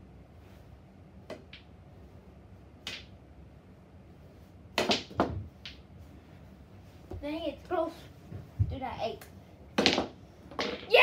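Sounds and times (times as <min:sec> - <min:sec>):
pool balls clacking: 0:04.8 - 0:05.9, 0:09.7 - 0:11.0.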